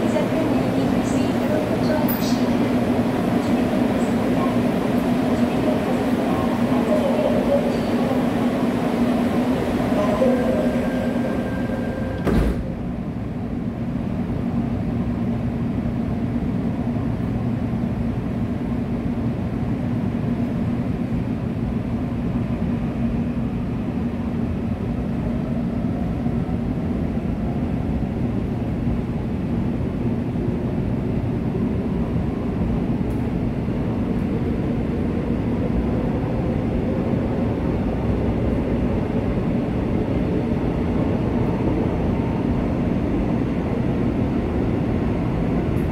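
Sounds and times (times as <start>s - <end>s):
train wheels rumbling on rail: 0.0s - 45.9s
thump: 12.2s - 12.7s.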